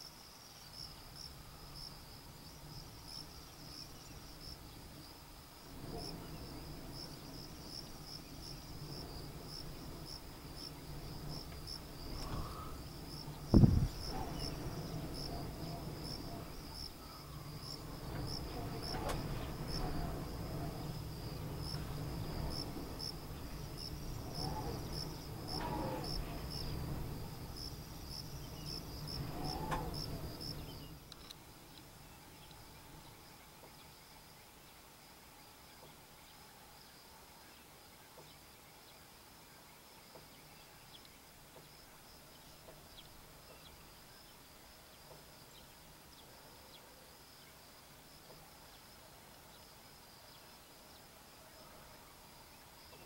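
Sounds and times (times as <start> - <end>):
insects chirping: 0.0 - 53.0
low rumble: 5.6 - 30.9
loud thump: 13.5 - 14.2.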